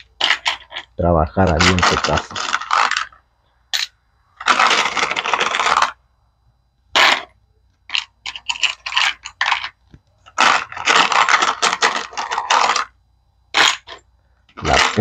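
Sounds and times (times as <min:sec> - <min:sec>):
metal screws rattling in plastic: 0:07.9 - 0:12.9.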